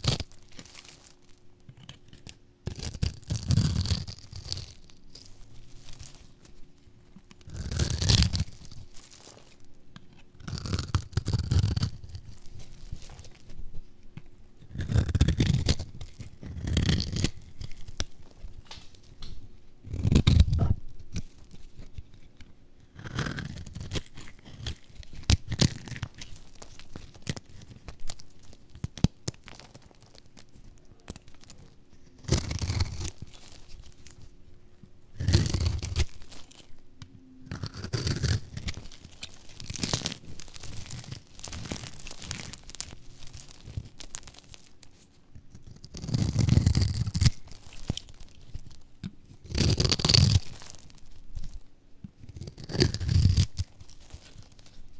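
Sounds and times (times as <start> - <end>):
blade cutting dry soap: 22.9 - 30.1, 32.1 - 34.2, 37.5 - 44.7.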